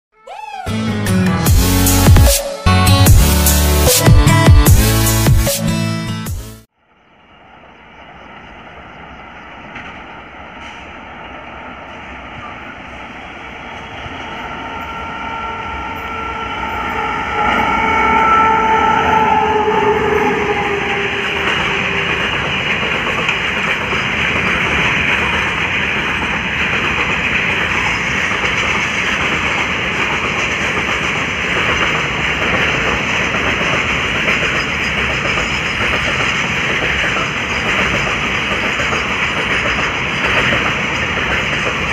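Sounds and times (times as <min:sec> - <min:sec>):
train rumble: 0:02.9 - 0:41.9
locomotive steady tones: 0:06.8 - 0:41.9
train wheels clattering: 0:20.1 - 0:41.9.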